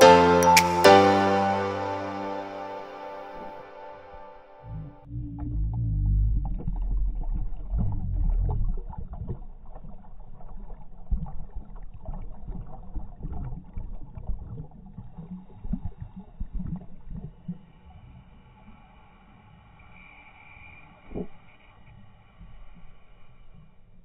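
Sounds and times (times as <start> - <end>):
scuba exhaust bubbles rushing: 4.7 - 17.8
small underwater clicks and crackles: 5.4 - 18.9, 19.9 - 24.0.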